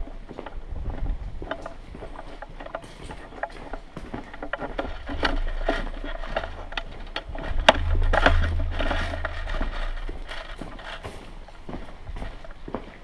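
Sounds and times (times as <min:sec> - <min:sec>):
footsteps on concrete: 0:10.6 - 0:13.0.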